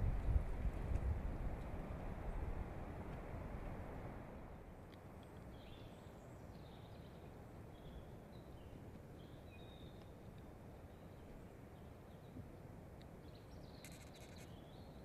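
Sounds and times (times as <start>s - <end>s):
faint songbirds chirping: 4.4s - 15.0s.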